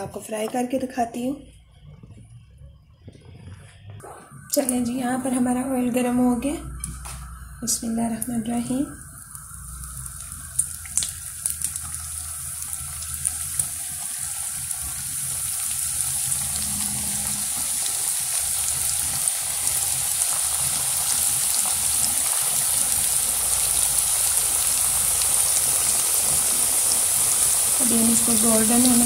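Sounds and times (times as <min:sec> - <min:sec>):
deep-frying sizzle: 0:04.0 - 0:29.0
oil popping: 0:09.2 - 0:29.0.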